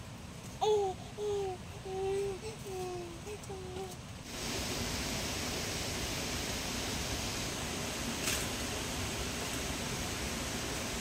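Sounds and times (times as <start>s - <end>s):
steady rushing noise: 4.2s - 11.0s.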